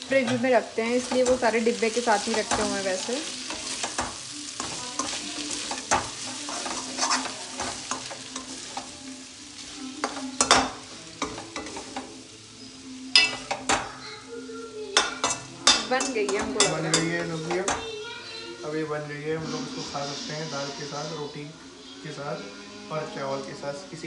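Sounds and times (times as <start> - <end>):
vegetables sizzling: 0.0 - 24.0
metal spatula scraping pan: 0.2 - 9.0.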